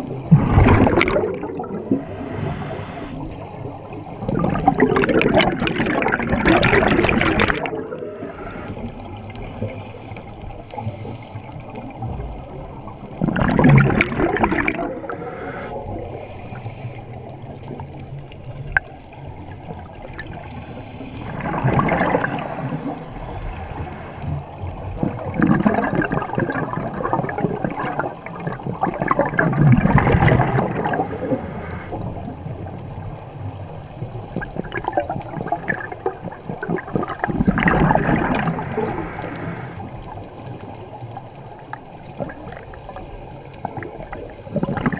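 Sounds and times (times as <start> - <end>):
exhaled bubbles gurgling: 0.0 - 44.9
water noise: 0.0 - 44.9.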